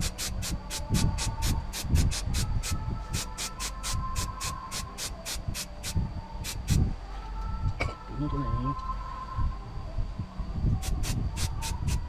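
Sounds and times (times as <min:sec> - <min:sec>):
spray paint can hissing: 0:00.0 - 0:06.8, 0:10.8 - 0:12.0.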